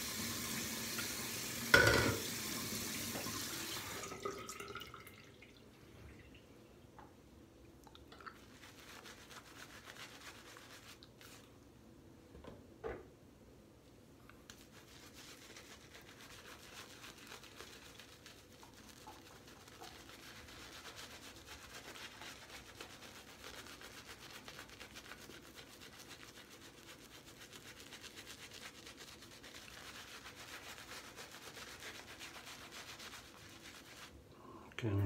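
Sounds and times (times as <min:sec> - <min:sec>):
shaving brush scratching on stubble: 0:08.5 - 0:11.5, 0:14.5 - 0:34.1.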